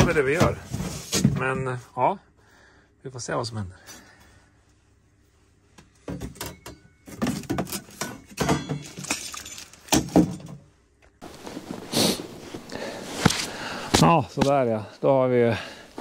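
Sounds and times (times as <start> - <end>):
objects knocking and clattering: 5.9 - 10.7.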